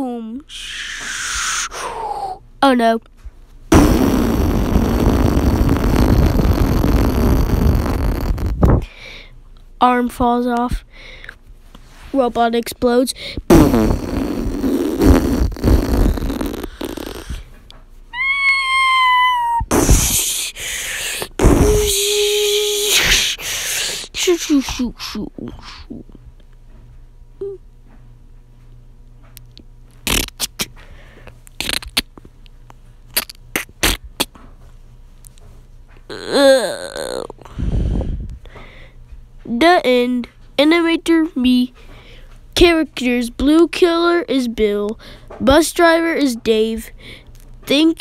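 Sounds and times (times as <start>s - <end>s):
vocal high squeal: 0.5s - 2.4s, 18.2s - 24.0s
vocal hiss: 0.5s - 2.4s, 3.7s - 9.1s, 13.2s - 17.5s, 19.3s - 26.0s, 30.0s - 30.7s, 31.6s - 32.1s
vocal sound sliding down: 0.5s - 2.4s
vocal explosion noise: 19.7s - 20.3s, 21.4s - 22.0s.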